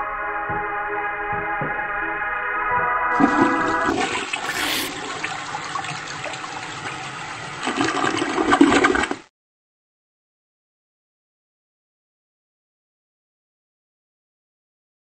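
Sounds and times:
toilet flushing: 3.1 - 9.2.

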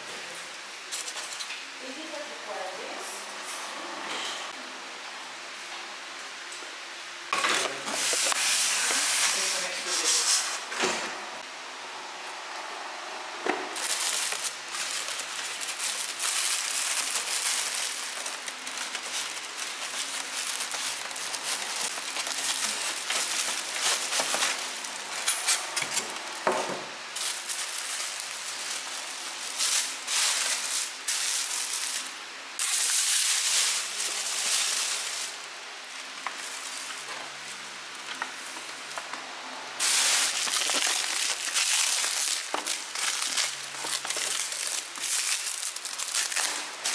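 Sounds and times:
foam packaging rubbing: 7.7 - 10.7, 13.8 - 26.3, 27.1 - 35.4, 39.8 - 46.9
plastic bag crinkling: 13.7 - 37.4, 39.8 - 46.9.

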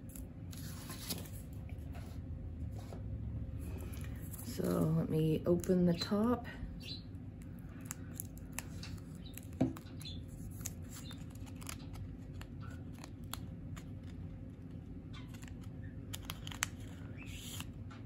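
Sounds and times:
low steady hum: 0.0 - 18.0
plastic wrapping crinkling: 7.8 - 17.6.

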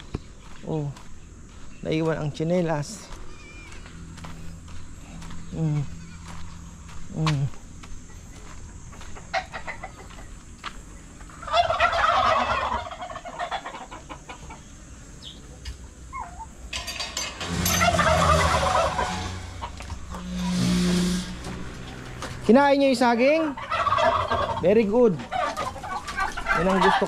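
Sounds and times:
poultry rattling calls: 3.0 - 4.0, 8.1 - 10.5, 11.2 - 27.0.

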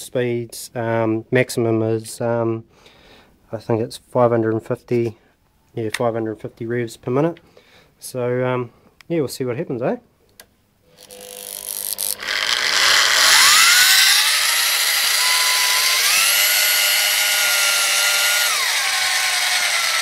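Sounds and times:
electric drill whine: 10.9 - 20.0.

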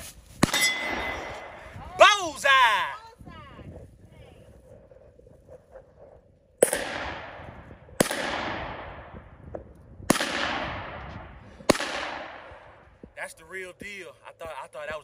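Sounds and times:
echoing gunshots: 0.4 - 1.7, 6.6 - 13.1.

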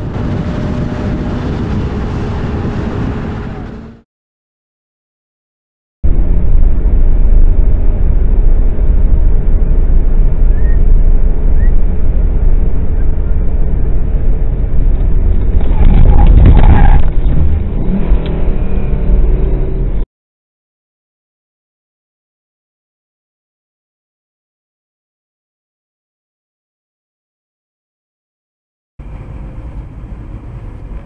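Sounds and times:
road and engine rumble in car: 0.0 - 4.0, 6.1 - 20.0, 29.0 - 31.0.

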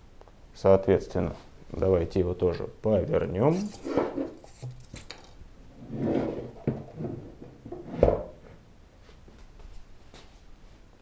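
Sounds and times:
plastic housing rubbing: 3.5 - 5.2.

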